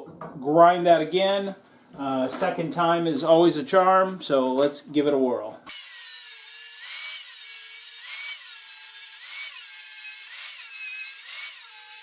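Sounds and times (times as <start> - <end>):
angle grinder grinding metal: 5.7 - 12.0.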